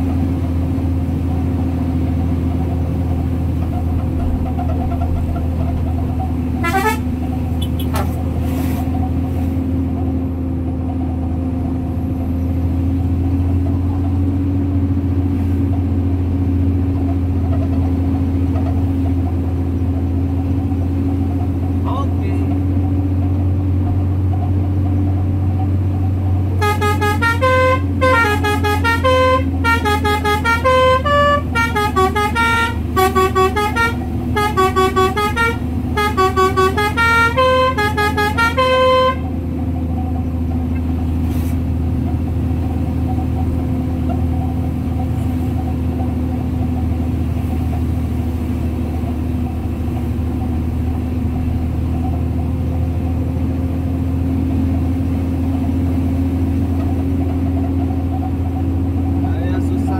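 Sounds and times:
truck engine droning: 0:00.0 - 0:59.9
musical vehicle horn playing tune: 0:06.6 - 0:08.0, 0:26.6 - 0:39.4.

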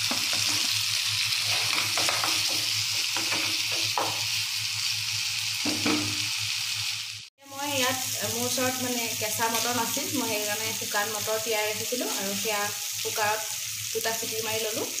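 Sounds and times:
spatula scraping pan: 0:00.0 - 0:04.1
masala sizzling in oil: 0:00.0 - 0:15.0.

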